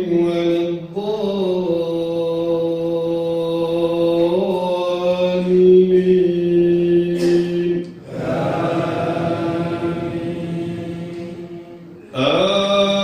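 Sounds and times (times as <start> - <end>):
man chanting into a microphone: 0.0 - 8.0, 12.0 - 13.0.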